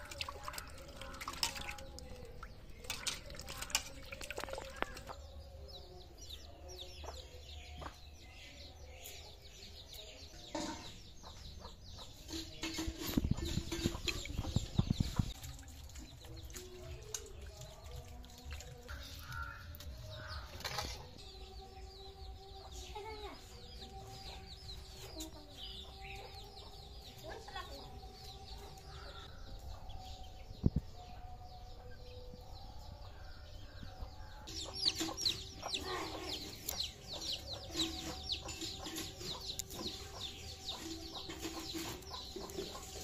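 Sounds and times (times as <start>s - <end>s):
small birds chirping: 0.0s - 43.0s
chickens clucking: 34.5s - 43.0s.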